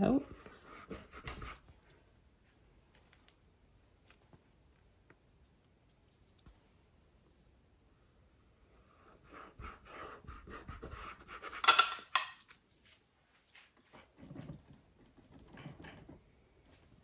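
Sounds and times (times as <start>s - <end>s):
paintbrush scrubbing on canvas: 0.0s - 1.7s
soft rustles: 12.6s - 17.0s.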